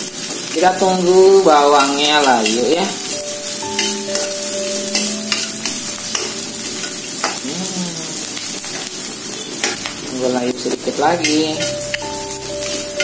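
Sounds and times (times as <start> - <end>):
shallots sizzling in hot oil: 0.0 - 13.0
metal spatula scraping wok: 1.4 - 7.4, 8.6 - 13.0.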